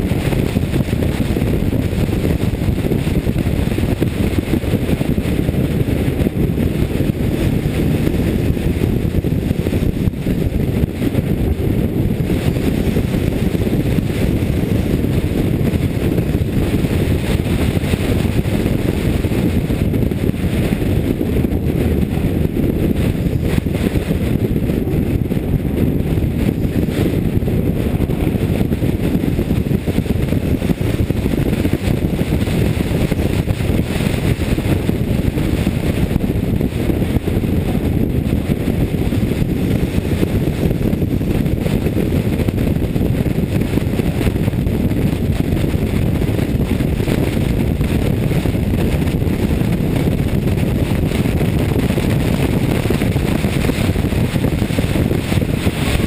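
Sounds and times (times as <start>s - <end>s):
race car engine running hard: 0.0s - 56.0s
wind noise: 0.0s - 56.0s.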